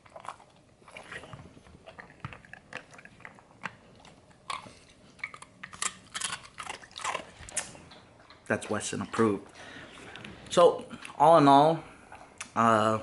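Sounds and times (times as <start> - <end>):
dog crunching a chip: 0.0 - 9.4.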